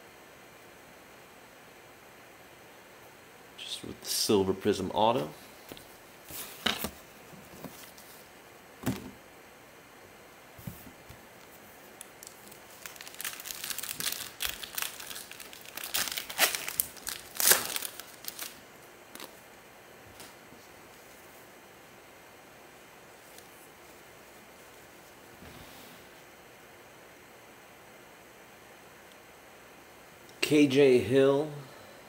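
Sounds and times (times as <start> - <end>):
wrapper crinkling and tearing: 12.0 - 19.4.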